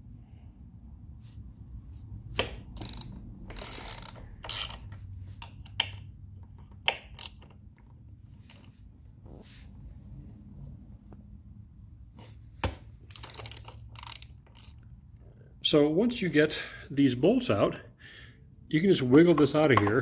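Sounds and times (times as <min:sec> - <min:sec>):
hand ratchet clicking: 0:02.4 - 0:07.6, 0:13.0 - 0:14.8.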